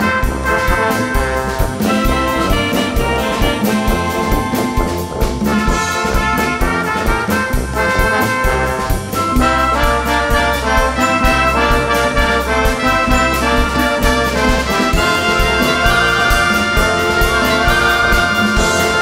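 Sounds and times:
brass instruments playing melody: 0.0 - 19.0
steady drum beat: 0.0 - 19.0.

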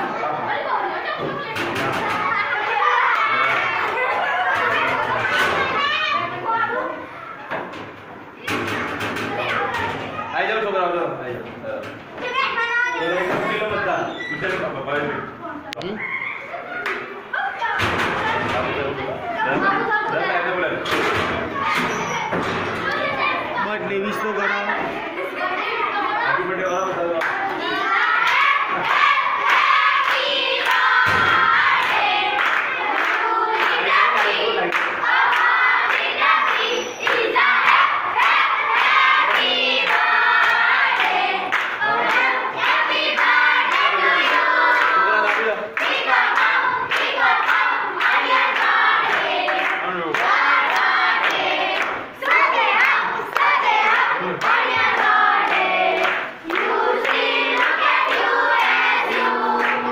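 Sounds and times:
children singing in chorus: 27.5 - 59.9
hands clapping a steady beat: 28.2 - 59.9.

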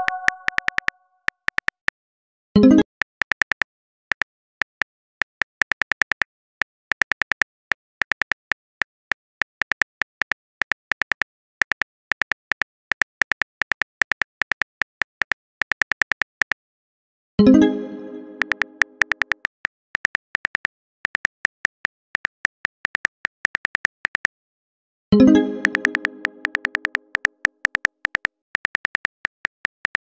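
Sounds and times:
smartphone keyboard typing clicks: 0.0 - 1.9, 18.4 - 24.3, 25.6 - 30.0.

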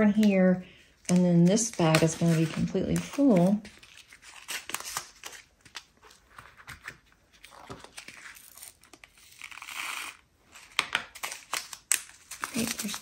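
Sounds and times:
plastic bag crinkling: 10.6 - 13.0.

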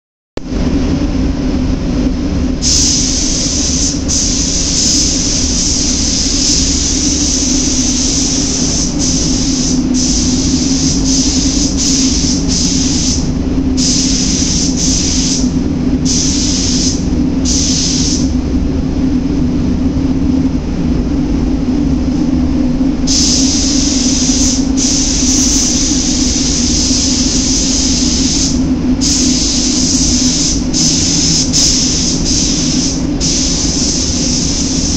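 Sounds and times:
low machine drone: 0.4 - 34.9
spray gun hissing: 2.6 - 18.3, 23.0 - 34.9.

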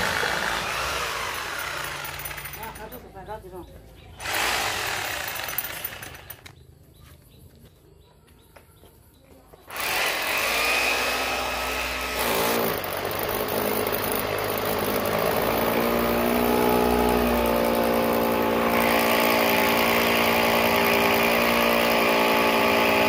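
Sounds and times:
engine running: 0.0 - 2.8
handheld power tool running: 0.0 - 3.0, 4.2 - 6.5, 9.7 - 23.0.

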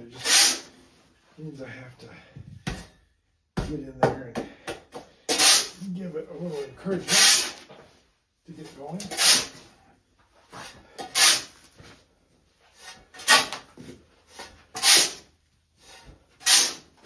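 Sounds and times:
shovel scraping sand: 0.0 - 0.8, 5.3 - 5.8, 7.0 - 7.7, 9.0 - 9.7, 10.6 - 11.6, 12.7 - 13.6, 14.2 - 17.0.

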